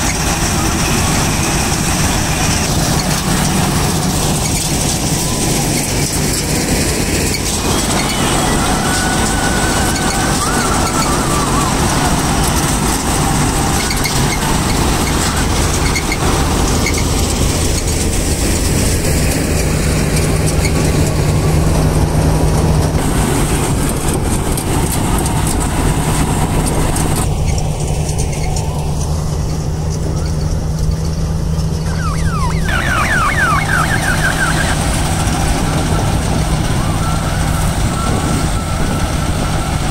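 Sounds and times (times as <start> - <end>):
combine harvester engine drone: 0.0 - 39.9
threshing machinery noise: 0.0 - 39.9.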